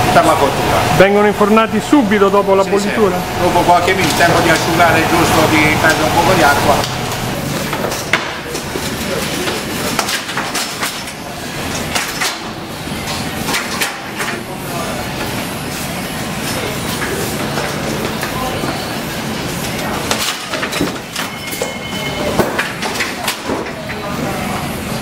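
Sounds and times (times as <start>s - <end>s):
steady background noise: 0.0s - 25.0s.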